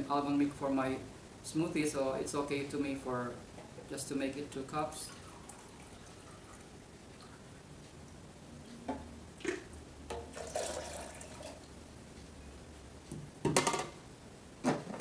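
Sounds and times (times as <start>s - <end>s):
water pouring and splashing: 9.4s - 11.6s.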